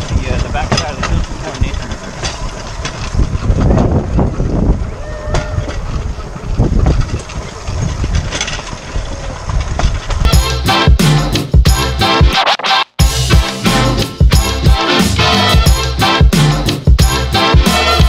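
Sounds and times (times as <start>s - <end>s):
steel wheels rolling on track: 0.0s - 10.7s
background music: 10.3s - 18.0s.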